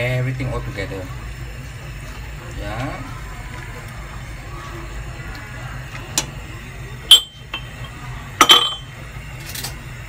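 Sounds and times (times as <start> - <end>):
steady low hum: 0.0 - 10.0
ladle clinking on metal pot: 7.1 - 8.9.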